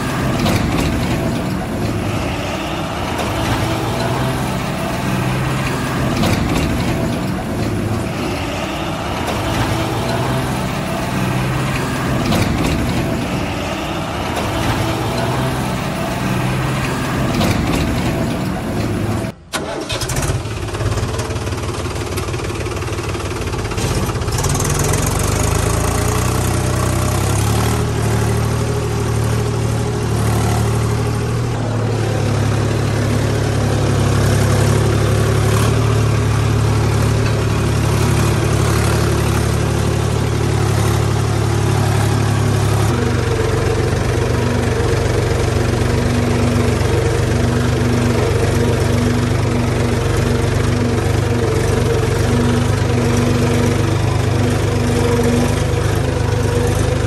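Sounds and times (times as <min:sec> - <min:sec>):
vehicle engine running: 0:00.0 - 0:19.4, 0:20.2 - 0:57.0.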